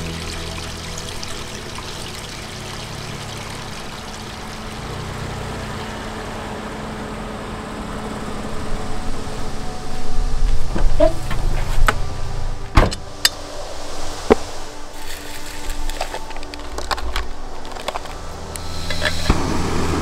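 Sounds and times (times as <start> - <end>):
running water rushing: 0.0 - 6.0.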